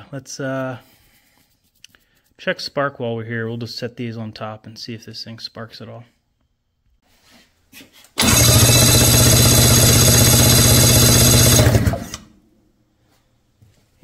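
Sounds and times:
electric starter cranking engine: 0:08.2 - 0:12.3.

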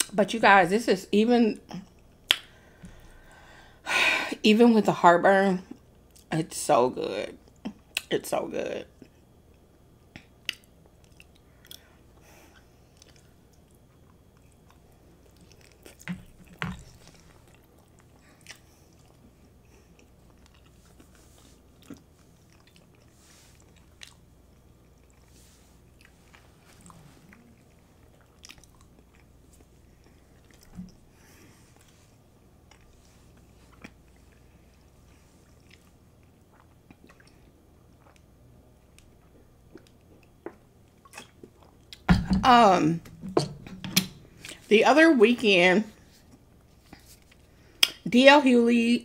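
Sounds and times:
wet chewing mouth clicks: 0:26.0 - 0:29.3.

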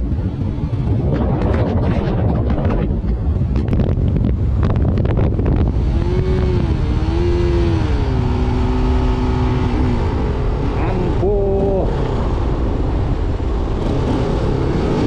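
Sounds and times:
wind buffeting microphone: 0:00.0 - 0:15.0
motorcycle engine running: 0:03.4 - 0:15.0.

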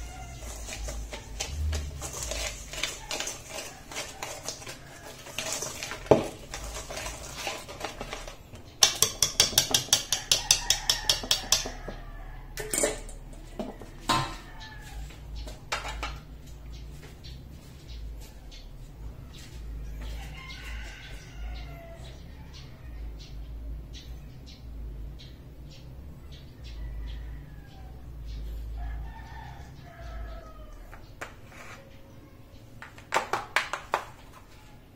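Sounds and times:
whisk clinking in metal bowl: 0:00.2 - 0:11.8.

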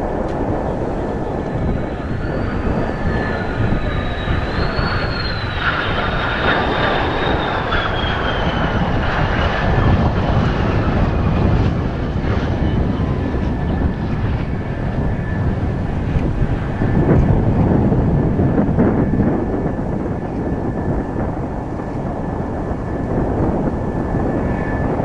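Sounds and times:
jet engine high whine passing: 0:00.0 - 0:25.0
wind buffeting on microphone: 0:00.0 - 0:25.0.

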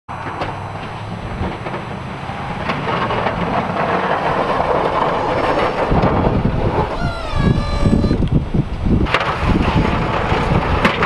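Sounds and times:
heavy rumbling: 0:00.1 - 0:11.0
truck engine pushing snow plow: 0:00.1 - 0:11.0
short falling whine: 0:03.8 - 0:08.3.

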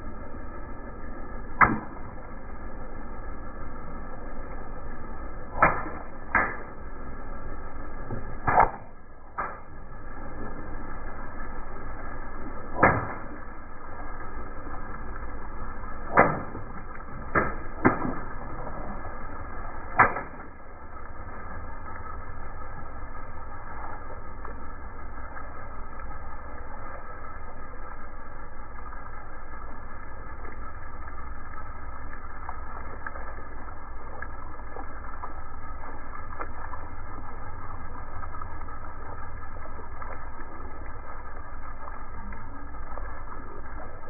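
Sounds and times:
low rumble: 0:00.0 - 0:44.0.

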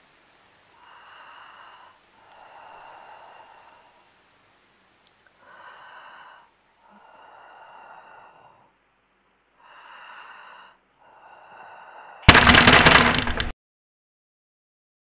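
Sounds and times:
person breathing heavily: 0:00.7 - 0:04.2, 0:05.3 - 0:08.8, 0:09.5 - 0:12.4.

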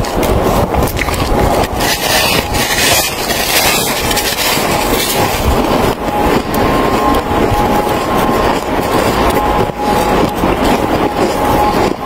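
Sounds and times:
person chewing snow crunching: 0:00.0 - 0:12.0.

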